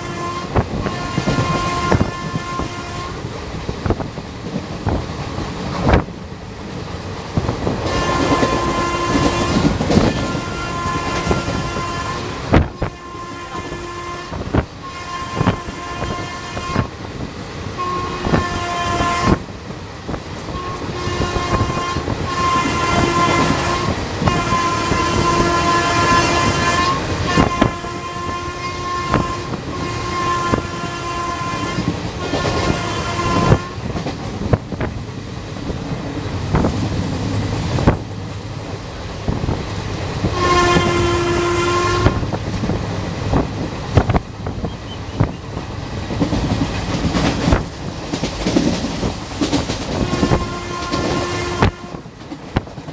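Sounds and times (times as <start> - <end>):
locomotive horn blasts: 0.0 - 3.3, 7.8 - 17.0, 17.7 - 19.5, 20.5 - 34.0, 40.2 - 42.4, 49.9 - 52.2
train wheels clattering over rail joints: 7.0 - 11.8, 31.6 - 40.9, 42.1 - 52.9.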